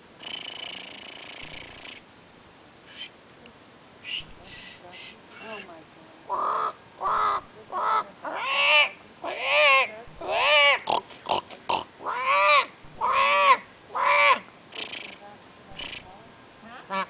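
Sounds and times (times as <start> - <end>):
man imitating bird calls: 4.0 - 5.6.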